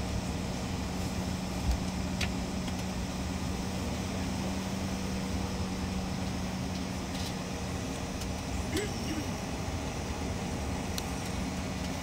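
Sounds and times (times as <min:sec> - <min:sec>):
jet engine and air rush: 0:00.0 - 0:12.0
steady low hum: 0:00.0 - 0:12.0.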